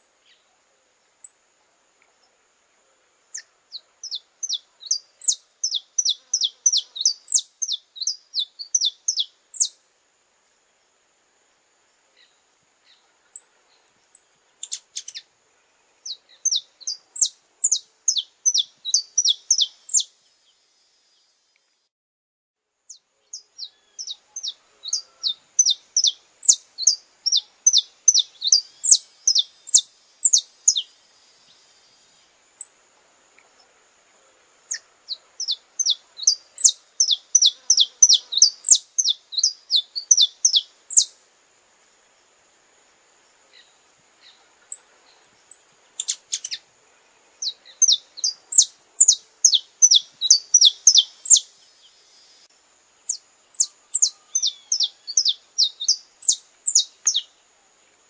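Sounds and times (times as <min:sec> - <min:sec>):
finch singing: 0:03.4 - 0:09.8, 0:16.1 - 0:20.1, 0:23.2 - 0:30.9, 0:34.7 - 0:41.1, 0:45.5 - 0:46.6, 0:47.4 - 0:51.5, 0:53.1 - 0:57.3.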